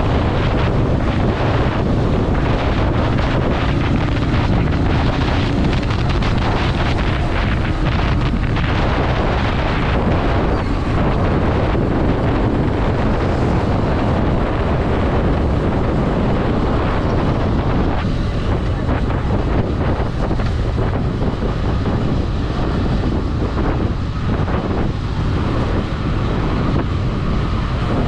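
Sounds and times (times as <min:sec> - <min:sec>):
motorcycle engine rumble: 0:00.0 - 0:28.0
road noise: 0:00.0 - 0:28.0
wind buffeting microphone: 0:00.0 - 0:28.0.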